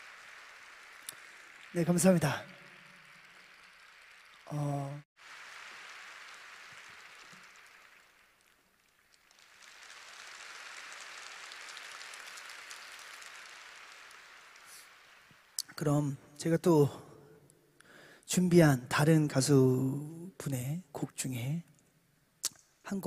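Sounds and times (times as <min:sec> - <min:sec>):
audience applauding: 0:00.0 - 0:15.7.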